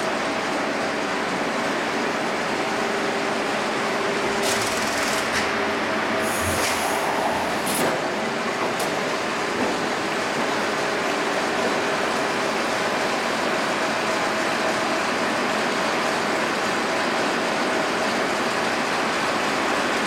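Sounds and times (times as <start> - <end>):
machine hum with steady tones: 2.8 - 9.3
high hiss bursts: 6.2 - 8.3.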